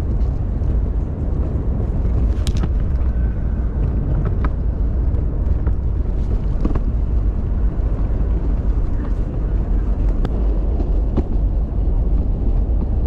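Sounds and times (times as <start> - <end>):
stroller rolling over pavement: 0.0 - 13.0.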